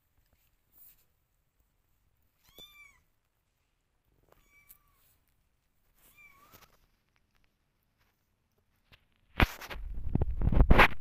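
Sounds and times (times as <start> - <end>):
kitten meowing: 2.4 - 3.1, 4.4 - 5.0.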